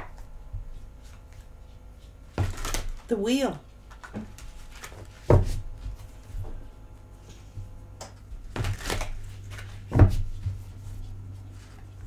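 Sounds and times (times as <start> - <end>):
cards slapping and clicking: 2.4 - 3.0, 3.9 - 5.4, 8.0 - 10.3.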